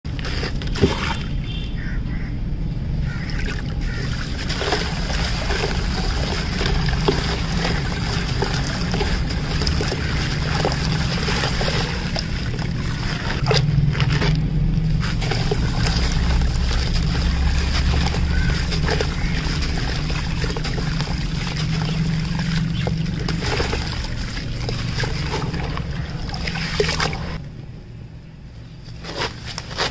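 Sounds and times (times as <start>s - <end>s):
steady low rumble: 1.2s - 29.0s
gritty grains crackling and trickling: 3.9s - 27.4s.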